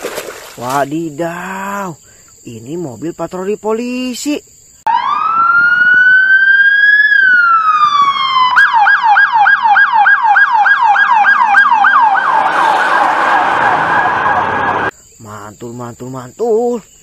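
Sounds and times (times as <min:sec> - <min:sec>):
siren wailing and yelping: 0:04.9 - 0:14.9.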